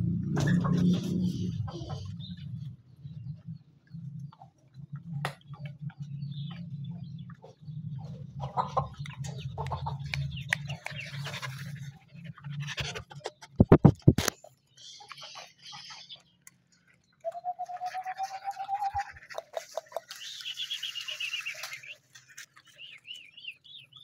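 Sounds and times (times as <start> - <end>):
dog panting: 10.6 - 13.6.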